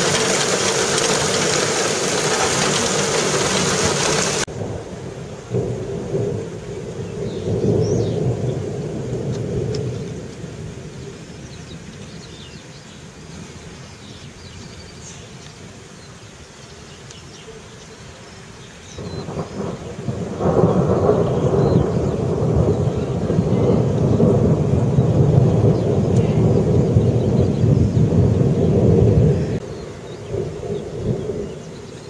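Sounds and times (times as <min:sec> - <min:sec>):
rolling thunder: 0:00.0 - 0:11.4, 0:19.0 - 0:32.0.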